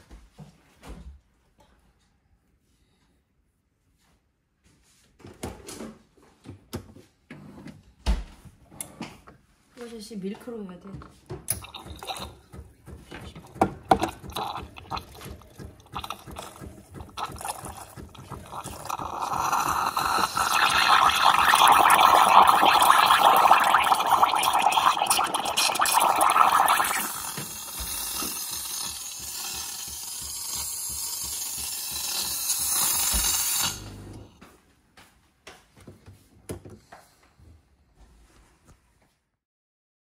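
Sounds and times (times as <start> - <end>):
steam wand hissing in milk: 15.8 - 34.1.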